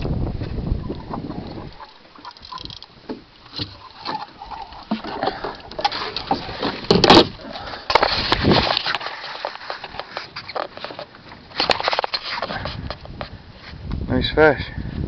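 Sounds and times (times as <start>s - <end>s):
camera handling noise: 7.9s - 13.3s.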